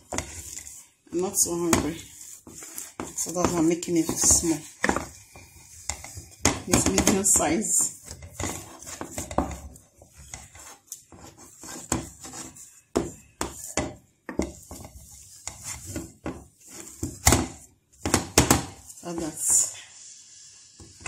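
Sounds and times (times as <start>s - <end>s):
wooden spoon scraping a pot: 0.0s - 21.0s.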